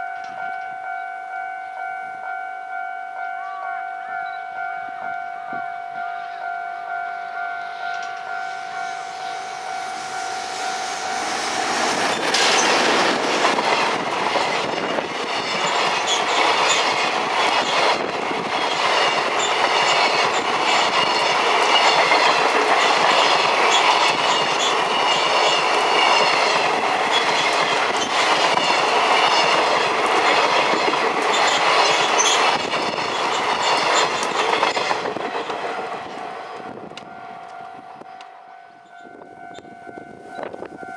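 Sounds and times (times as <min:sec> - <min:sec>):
freight train rumbling past: 0:06.2 - 0:40.9
wheels clacking over rail joints: 0:10.8 - 0:37.1.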